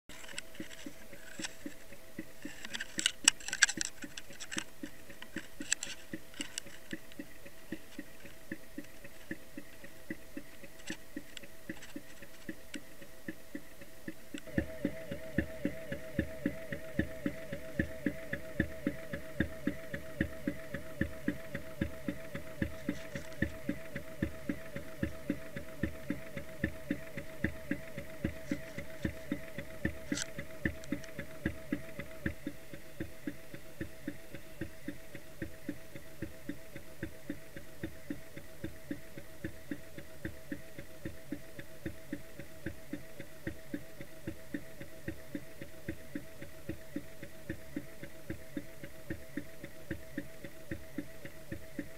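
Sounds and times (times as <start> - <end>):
mechanical ticking underwater: 0.1 - 51.9
wavering hum: 3.9 - 40.8.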